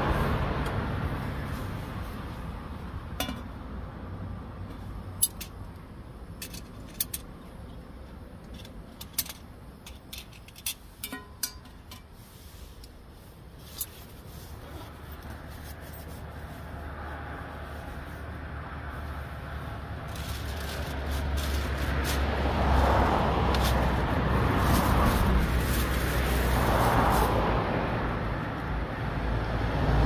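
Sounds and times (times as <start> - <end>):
road traffic rumble: 0.0 - 30.0.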